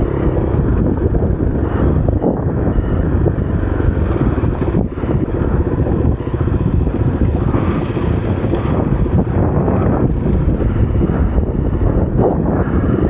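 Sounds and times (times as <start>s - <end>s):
motorcycle engine running: 0.0s - 13.0s
wind buffeting microphone: 0.0s - 13.0s.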